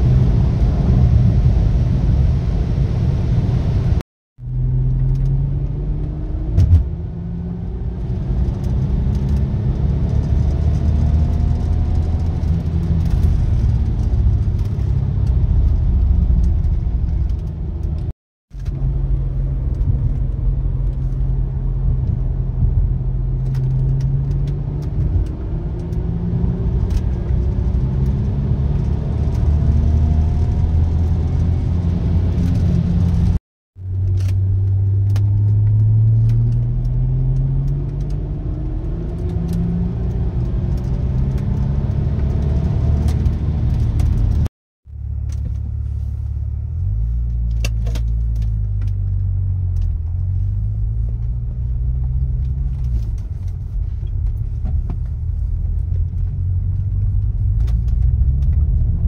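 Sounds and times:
car engine revving inside cabin: 0:00.0 - 0:59.0
road noise: 0:00.0 - 0:59.0.

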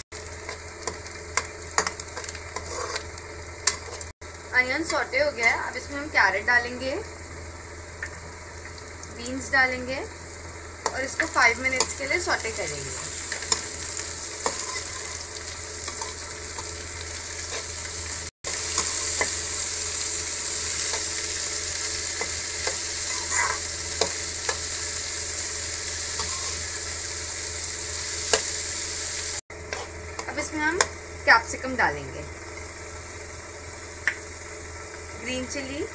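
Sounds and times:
vegetables sizzling in oil: 0:00.0 - 0:35.9
metal spatula scraping a pan: 0:01.8 - 0:04.1, 0:14.4 - 0:16.7, 0:17.4 - 0:17.8, 0:22.2 - 0:24.6, 0:26.2 - 0:26.8.

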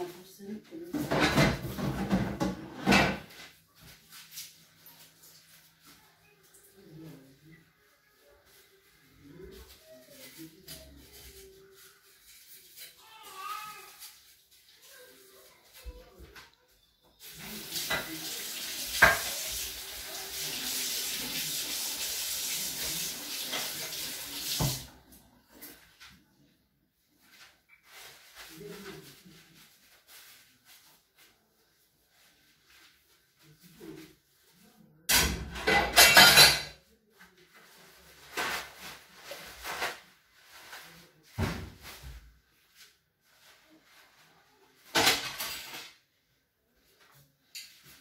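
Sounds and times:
dishes clattering at sink: 0:00.9 - 0:03.5, 0:17.2 - 0:25.0, 0:35.1 - 0:36.9, 0:44.8 - 0:46.0
hands washing in water: 0:17.2 - 0:25.0
tap running into sink: 0:17.7 - 0:19.6, 0:22.2 - 0:24.9.

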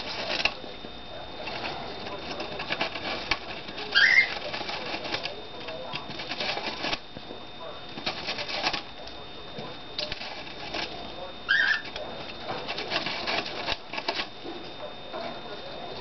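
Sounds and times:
parakeet scratching styrofoam: 0:00.0 - 0:15.4
parakeet chirp: 0:03.9 - 0:04.3, 0:11.5 - 0:11.9.

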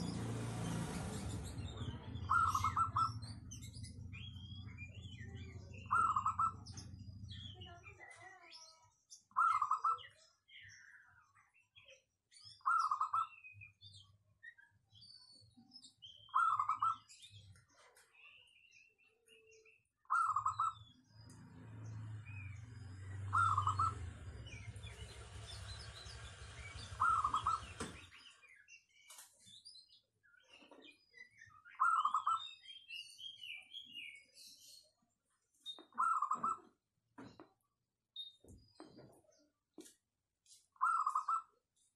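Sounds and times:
small birds chirping: 0:00.0 - 0:41.9
dove cooing: 0:23.3 - 0:24.0, 0:26.9 - 0:27.8.

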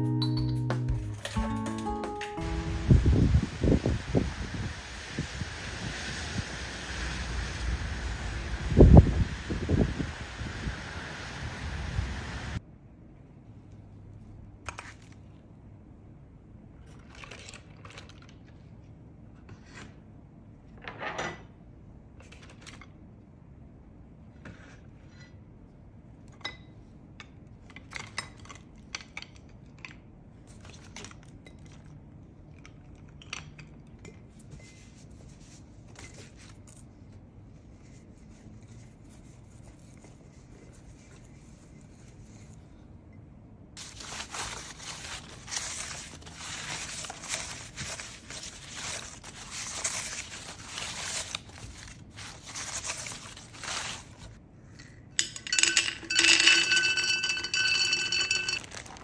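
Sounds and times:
fabric scraping wicker basket: 0:43.8 - 0:54.4, 0:58.5 - 0:59.0.

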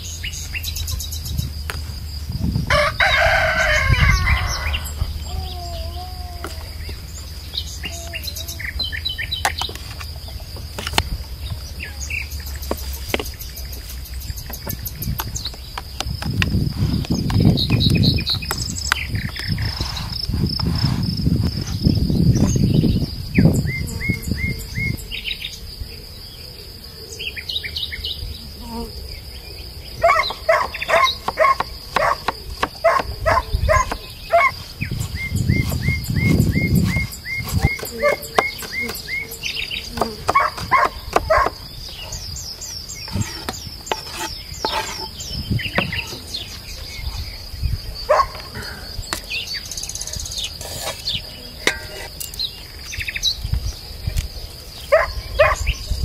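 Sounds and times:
high insect whine: 0:00.0 - 0:56.0
small birds chirping: 0:00.0 - 0:56.0
rooster crowing: 0:02.7 - 0:06.5.

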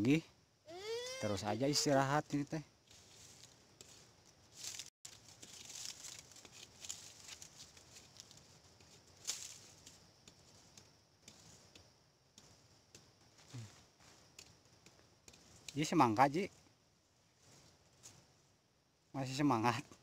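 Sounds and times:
dry leaves rustling and crackling: 0:02.8 - 0:10.7.

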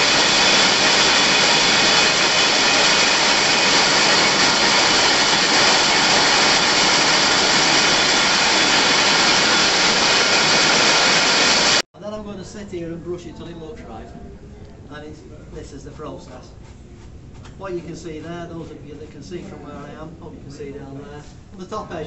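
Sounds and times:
spinning frames mechanical din: 0:00.0 - 0:11.8.

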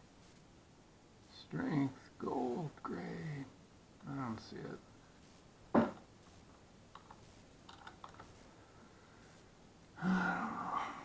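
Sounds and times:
computer mouse clicks: 0:06.9 - 0:08.3.

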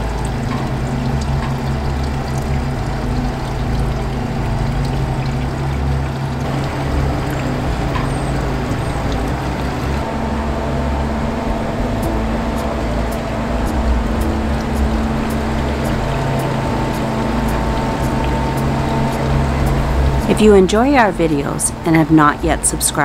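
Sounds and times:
outboard motor idling: 0:00.0 - 0:23.0
water pouring: 0:00.0 - 0:23.0.

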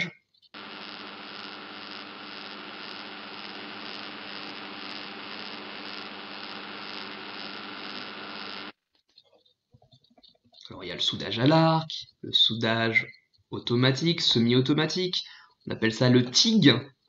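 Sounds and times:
arc welding hiss: 0:00.0 - 0:08.8
low hum: 0:00.6 - 0:08.7.

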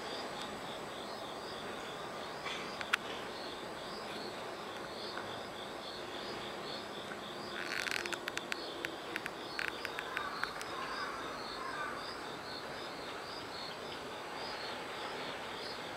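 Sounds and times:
background hiss: 0:00.0 - 0:15.9
insect chirping: 0:00.0 - 0:15.9
sharp clicks: 0:07.6 - 0:10.7.

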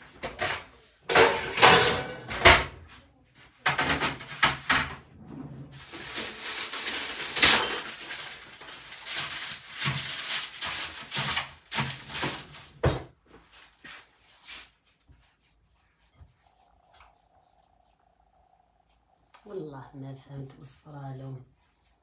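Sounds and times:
dishes and utensils clattering: 0:00.2 - 0:02.8, 0:03.6 - 0:05.1, 0:05.8 - 0:08.4.

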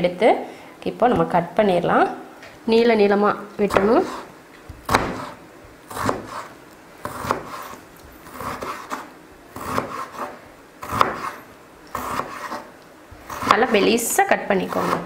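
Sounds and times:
knife cutting potato on board: 0:03.6 - 0:15.0.

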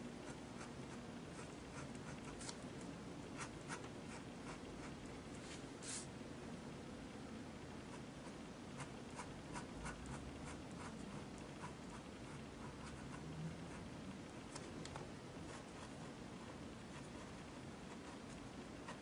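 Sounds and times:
steady background hiss: 0:00.0 - 0:19.0
pen scratching on paper: 0:03.4 - 0:05.0, 0:07.9 - 0:13.8.

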